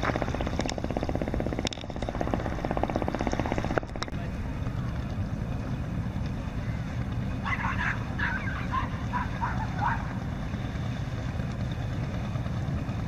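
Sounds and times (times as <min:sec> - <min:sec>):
steady low rumble: 0:00.0 - 0:13.0
dog barking: 0:07.5 - 0:10.1.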